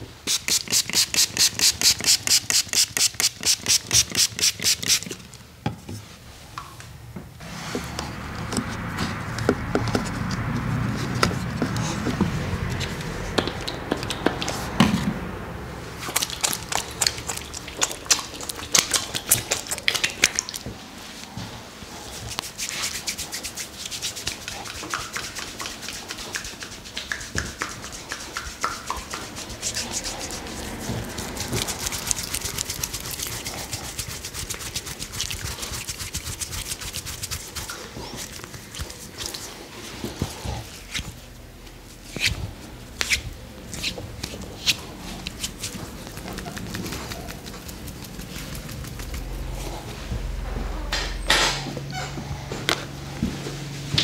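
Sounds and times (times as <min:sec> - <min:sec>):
pump spray bottle spraying: 0:00.3 - 0:05.2, 0:22.4 - 0:39.4
hands rubbing: 0:22.1 - 0:41.2, 0:41.8 - 0:50.1
hands rubbing skin: 0:22.1 - 0:41.2, 0:41.8 - 0:50.1.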